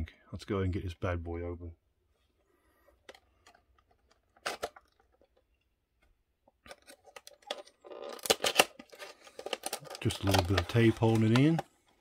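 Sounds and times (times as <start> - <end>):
packaging clicks: 3.1 - 5.4, 6.5 - 12.0
packaging crackling and rustling: 6.6 - 12.0.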